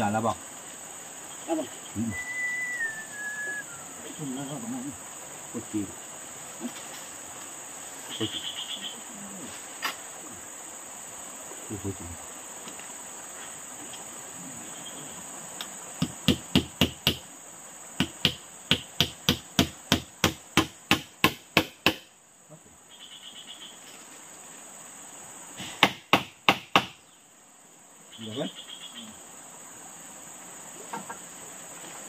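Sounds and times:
insect chorus: 0:00.0 - 0:32.0.

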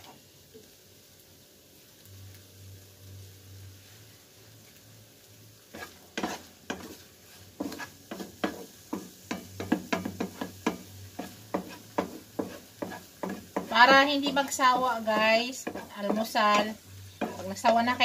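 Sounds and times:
spatula scraping frying pan: 0:05.7 - 0:18.0.

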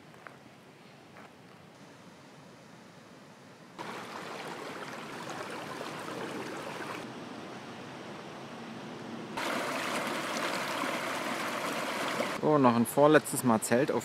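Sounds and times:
river flowing over stones: 0:03.8 - 0:07.1, 0:09.4 - 0:12.4.

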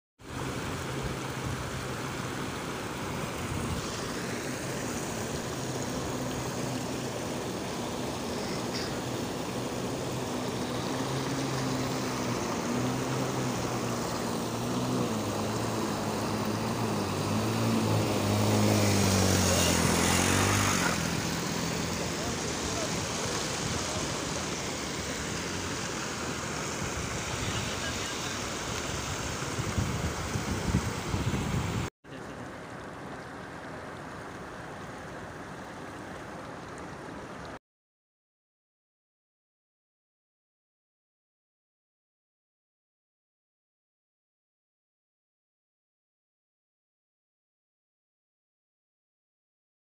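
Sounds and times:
floodwater rushing: 0:00.2 - 0:37.6
shallow water flowing over stones: 0:00.2 - 0:37.6
motorcycle engine: 0:10.8 - 0:24.4.

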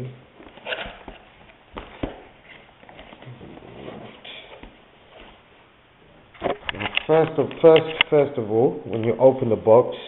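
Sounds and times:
cardboard scraping and rustling: 0:00.5 - 0:04.6.

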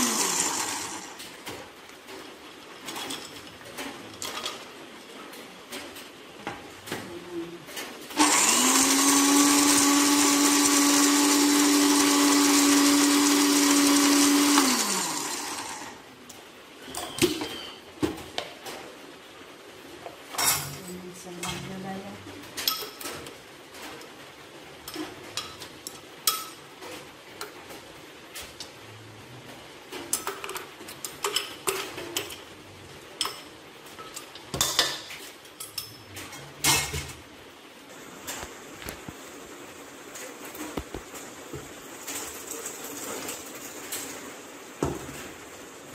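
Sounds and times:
electric blender grinding: 0:00.0 - 0:01.3, 0:08.2 - 0:16.0.

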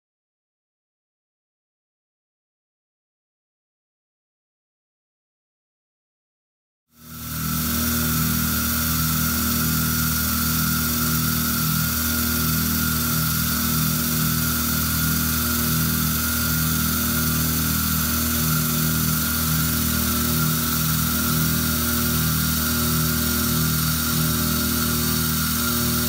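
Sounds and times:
low pulsing hum: 0:07.0 - 0:26.0
milling machine whine: 0:07.0 - 0:26.0.

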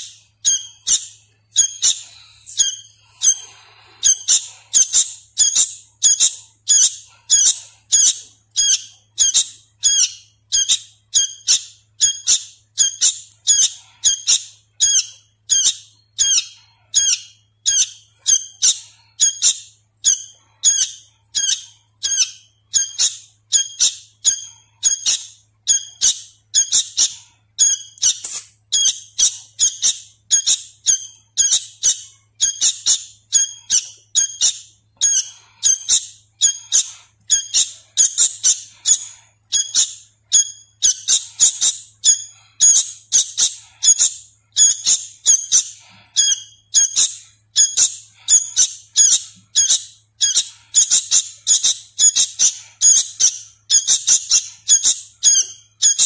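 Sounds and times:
bird chick calling: 0:00.0 - 0:56.0.

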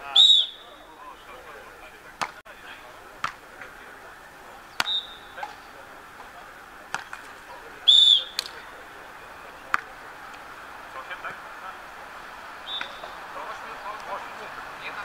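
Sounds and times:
high whistle: 0:00.0 - 0:00.8, 0:04.8 - 0:05.4, 0:07.8 - 0:08.4, 0:12.6 - 0:13.2
hands slapping volleyball: 0:02.2 - 0:02.4, 0:03.2 - 0:03.7, 0:06.9 - 0:07.4.

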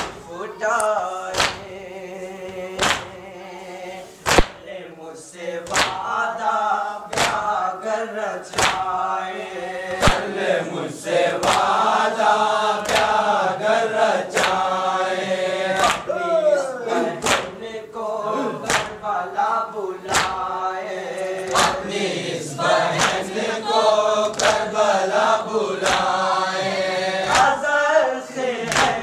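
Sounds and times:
chest-beating slaps: 0:00.0 - 0:01.7, 0:02.8 - 0:03.2, 0:04.2 - 0:04.6, 0:05.6 - 0:06.0, 0:07.1 - 0:07.4, 0:08.5 - 0:08.9, 0:09.9 - 0:10.4, 0:11.4 - 0:11.7, 0:12.8 - 0:13.2, 0:14.3 - 0:14.7, 0:15.8 - 0:16.1, 0:17.2 - 0:17.6, 0:18.6 - 0:19.0, 0:20.1 - 0:20.4, 0:21.2 - 0:21.9, 0:22.9 - 0:23.3, 0:24.3 - 0:24.7, 0:25.8 - 0:27.6, 0:28.7 - 0:29.0
voices chanting a lament: 0:00.0 - 0:29.0.

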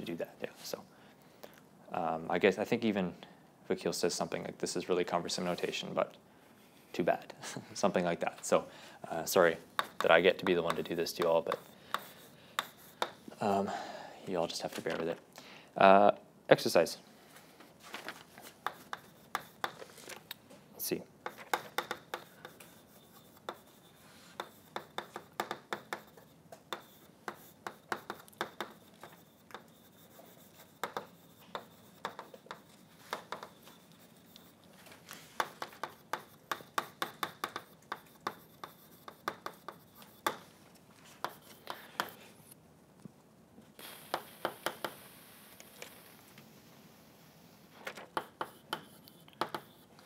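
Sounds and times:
chalk tapping and scratching on blackboard: 0:09.2 - 0:13.3, 0:18.4 - 0:20.0, 0:21.2 - 0:42.6, 0:43.8 - 0:45.9, 0:48.0 - 0:50.0.

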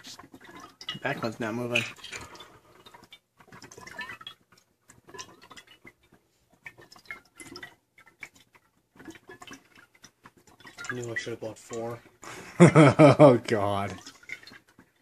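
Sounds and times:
liquid gurgling from bottles: 0:00.0 - 0:15.0.

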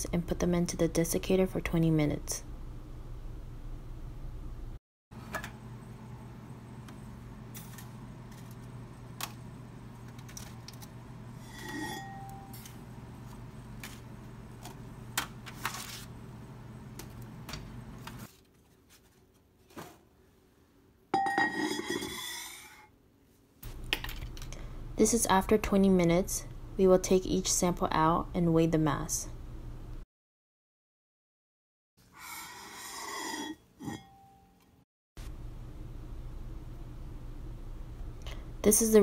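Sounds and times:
oven humming: 0:00.1 - 0:18.4, 0:35.2 - 0:39.0
glass lid scraping and ringing: 0:11.4 - 0:12.7, 0:21.2 - 0:22.8, 0:32.3 - 0:34.4.

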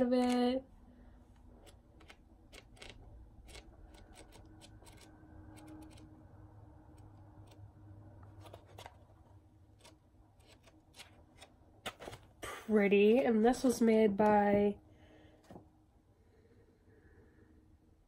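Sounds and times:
paper pages flipping: 0:01.6 - 0:06.0, 0:06.9 - 0:12.4.

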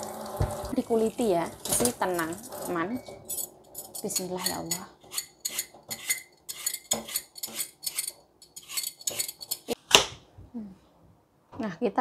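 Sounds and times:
peeler scraping apple skin: 0:04.2 - 0:09.8.

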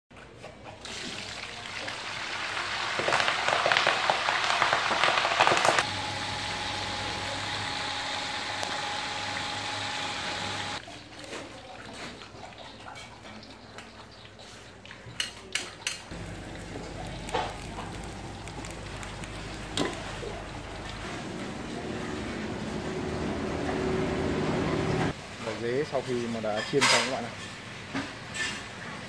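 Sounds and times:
hot oil sizzling and crackling: 0:00.8 - 0:11.2, 0:12.1 - 0:21.7.

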